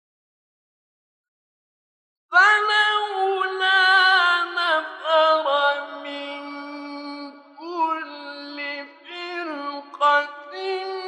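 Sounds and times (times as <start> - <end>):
man chanting melodically: 2.4 - 11.0.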